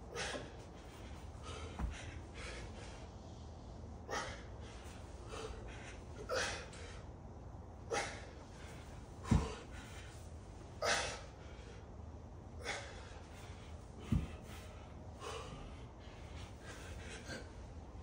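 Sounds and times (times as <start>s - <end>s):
man breathing forcefully: 0.0s - 18.0s.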